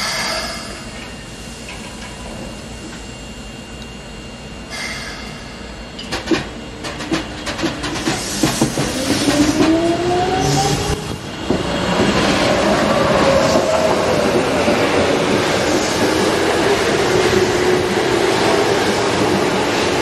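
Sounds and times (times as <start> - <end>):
air brake hiss: 0.0 - 1.7, 4.7 - 5.7.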